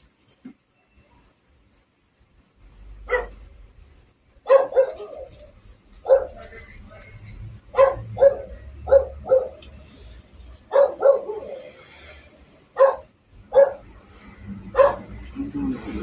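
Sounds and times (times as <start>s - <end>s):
dog barking: 3.1s - 3.4s, 4.4s - 5.4s, 6.0s - 6.5s, 7.7s - 9.6s, 10.7s - 11.7s, 12.8s - 14.0s, 14.7s - 15.3s.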